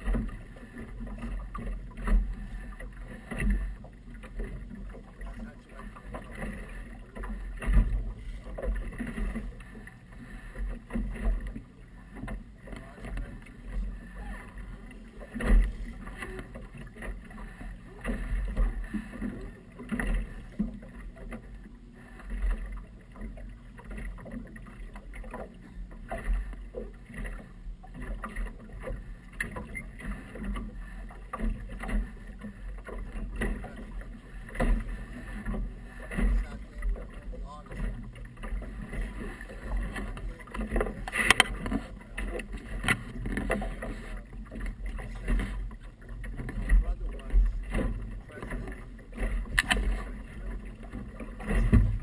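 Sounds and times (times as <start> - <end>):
low uneven rumble: 0.0 - 52.0
water slapping against hull: 0.0 - 52.0
knocks from boat hull: 50.8 - 52.0.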